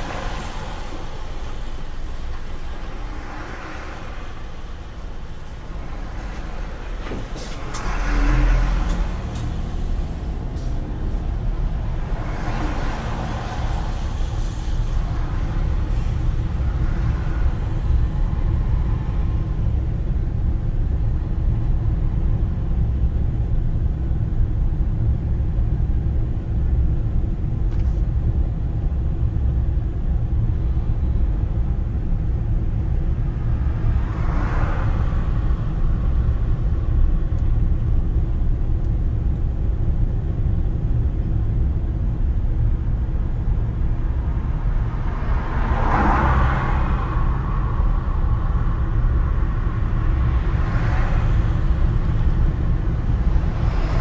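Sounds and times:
truck passing: 0.0s - 19.8s, 43.6s - 54.0s
car engine and road rumble: 0.0s - 54.0s.

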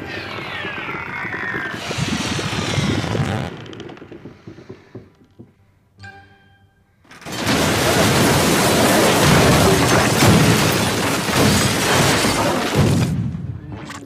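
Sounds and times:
debris crashing and shattering: 7.1s - 13.4s.

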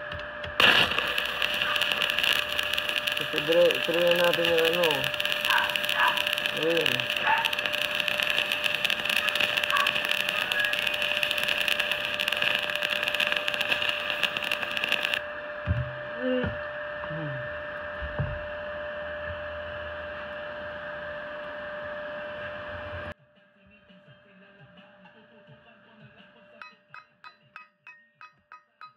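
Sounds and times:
welding arc crackling: 0.0s - 15.2s
steady hum: 0.0s - 23.2s.

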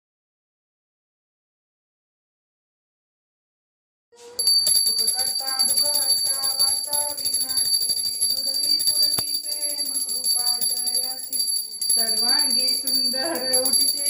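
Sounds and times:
small hand bell ringing: 4.3s - 14.0s
devotional singing: 4.9s - 14.0s.

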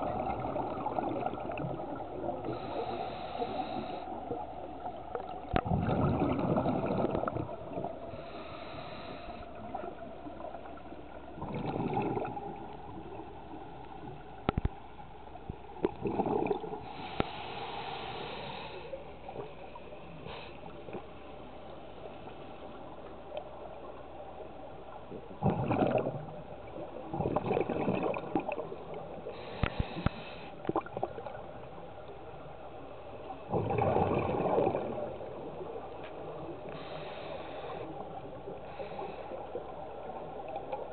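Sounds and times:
exhaled bubbles gurgling: 0.0s - 40.9s
regulator inhalation hiss: 2.5s - 4.2s, 8.2s - 9.4s, 16.9s - 19.0s, 29.3s - 30.6s, 36.7s - 38.0s.

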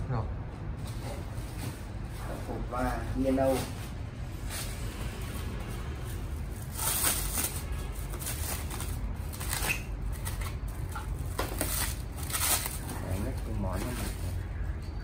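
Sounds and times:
plastic wrap crinkling: 6.5s - 14.5s
packing peanuts rustling: 6.6s - 14.4s.

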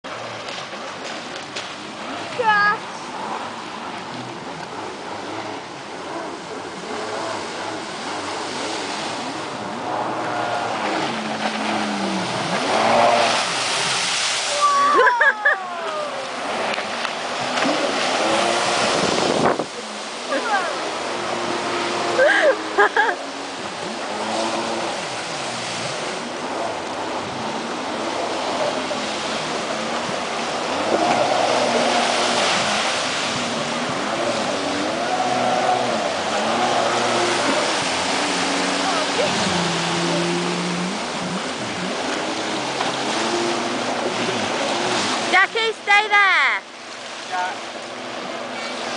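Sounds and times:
small waves breaking: 0.0s - 48.9s
jet ski engine revving: 0.1s - 48.9s.

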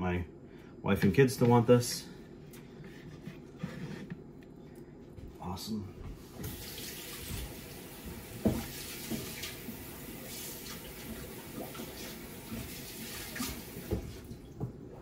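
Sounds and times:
tap running into sink: 6.4s - 9.6s, 12.5s - 14.8s.

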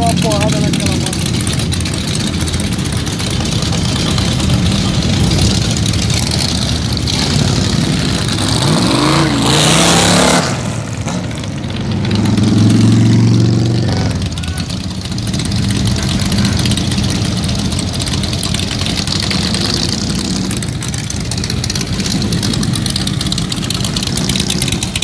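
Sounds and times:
trike engines running at low revs: 0.0s - 25.0s
engine revving with exhaust burst: 6.8s - 14.4s.

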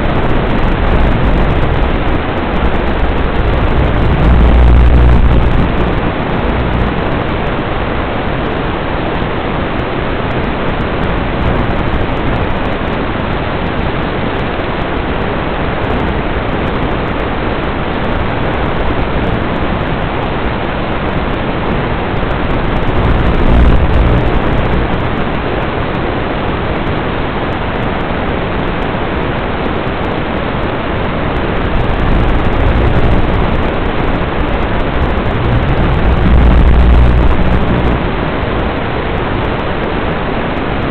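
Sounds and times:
low rumble: 0.0s - 7.5s, 10.8s - 12.8s, 22.2s - 25.4s, 31.7s - 38.6s
rushing hiss of static: 0.0s - 40.9s.

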